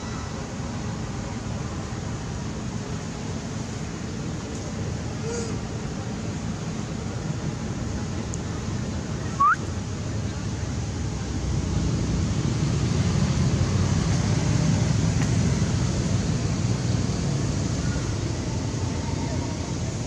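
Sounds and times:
sharp rising chirp: 9.3s - 9.6s.

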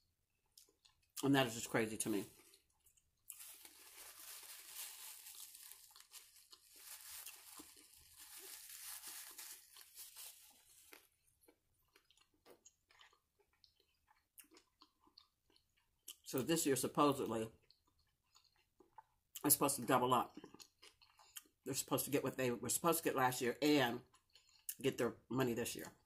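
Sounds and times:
chewing sandwich: 0.3s - 1.2s, 2.2s - 16.3s, 17.5s - 19.5s, 20.2s - 21.6s, 24.0s - 24.8s
paper wrapper rustling: 3.3s - 11.1s.

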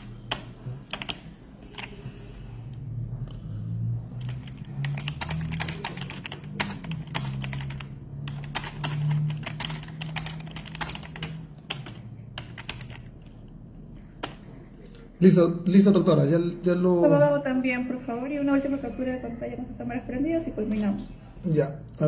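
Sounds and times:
low hum: 2.0s - 5.5s.

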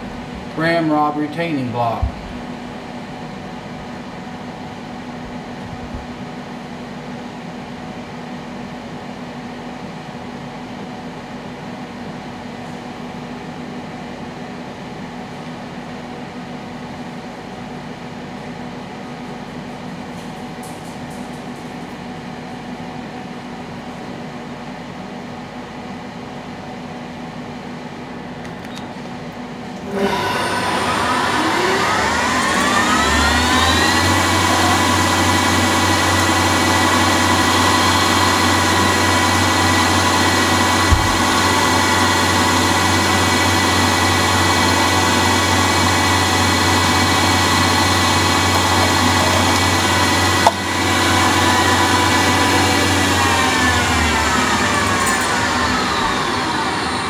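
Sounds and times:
lathe humming: 29.8s - 57.0s
lathe spindle whine: 29.8s - 57.0s.

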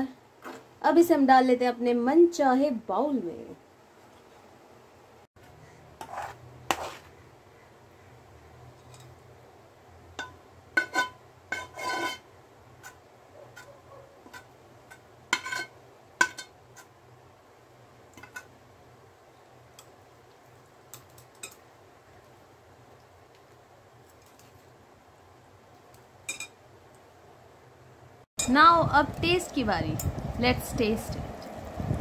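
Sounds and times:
utensils clinking on steel pan: 10.2s - 12.2s, 14.3s - 16.9s, 21.0s - 21.6s, 26.3s - 26.6s.

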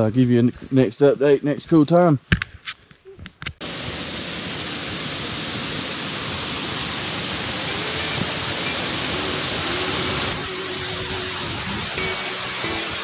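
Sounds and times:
creek rushing over rocks: 3.6s - 13.0s.

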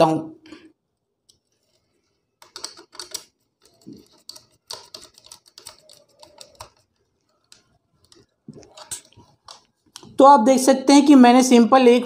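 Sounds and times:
wire clicking and scraping on terminal: 1.2s - 10.2s.

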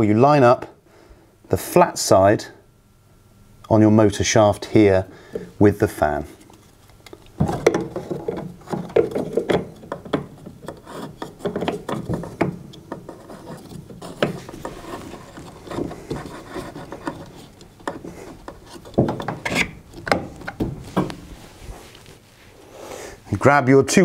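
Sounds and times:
plastic knocks and clicks: 7.0s - 21.2s.

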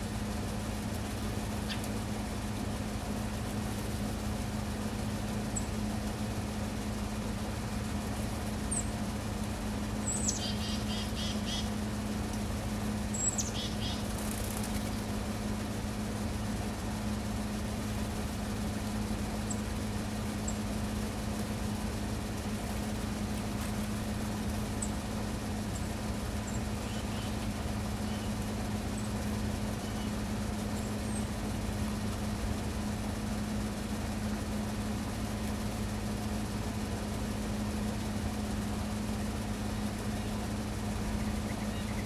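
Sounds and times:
low mechanical motor hum: 0.0s - 42.0s
outdoor background noise: 0.0s - 42.0s
faint high bird chirps: 1.6s - 1.9s, 10.0s - 11.8s, 13.1s - 14.1s, 26.4s - 27.4s, 28.0s - 28.3s, 29.8s - 30.2s, 41.2s - 42.0s.

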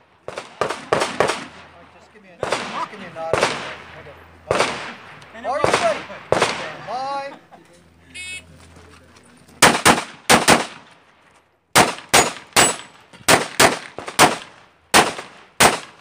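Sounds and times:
pistol shots: 0.2s - 1.7s, 2.4s - 6.8s, 9.6s - 11.0s, 11.7s - 16.0s.

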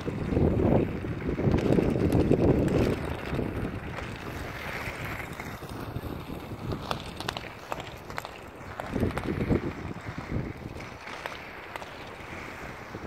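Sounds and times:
skate wheels rolling on asphalt: 0.0s - 13.0s
wind rumbling on microphone: 0.0s - 13.0s.

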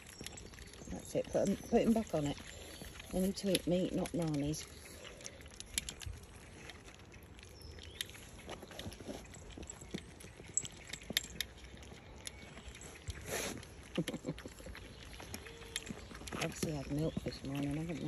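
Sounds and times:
puppies eating wet smacking: 0.0s - 18.0s.

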